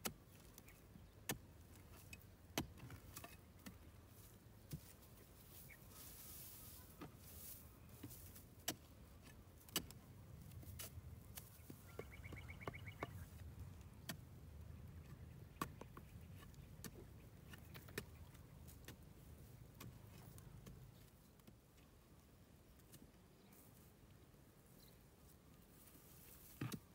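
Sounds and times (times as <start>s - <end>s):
stick digging into dry ground: 0.0s - 11.9s, 25.8s - 26.9s.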